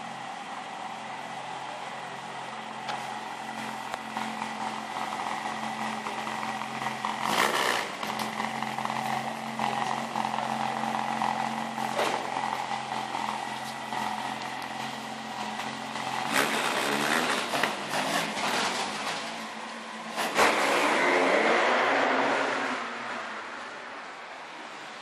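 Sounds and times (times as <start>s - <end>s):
car engine idling: 0.0s - 20.3s
engine revving: 4.2s - 23.6s.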